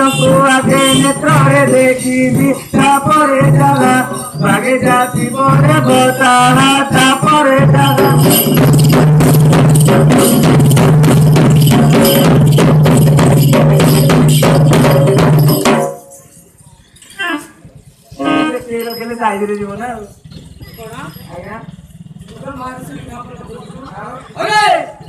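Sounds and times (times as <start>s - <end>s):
fast folk drumming: 0.0s - 16.0s.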